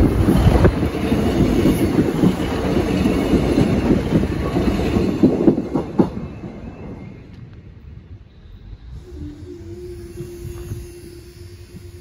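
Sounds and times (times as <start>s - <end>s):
train wheels clacking over rail joints: 0.0s - 6.6s
train rumbling past: 0.0s - 12.0s.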